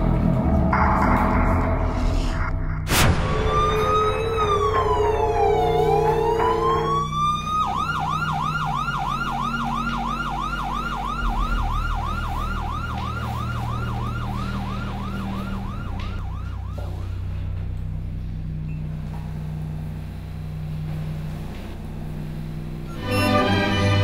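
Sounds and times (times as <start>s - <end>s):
siren wailing: 3.0s - 17.4s
siren yelping: 3.2s - 17.0s.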